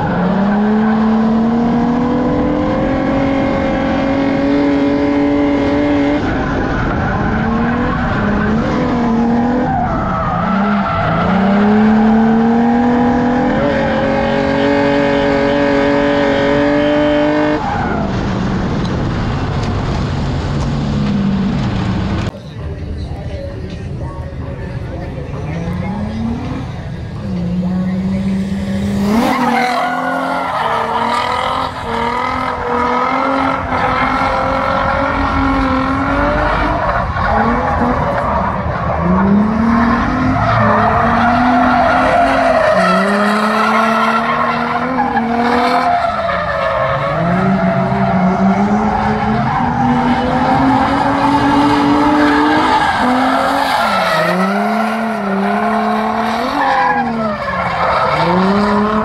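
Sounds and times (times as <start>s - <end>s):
car engine revving high: 0.0s - 22.3s, 25.5s - 59.0s
tyres squealing and skidding: 6.2s - 12.5s, 25.4s - 59.0s.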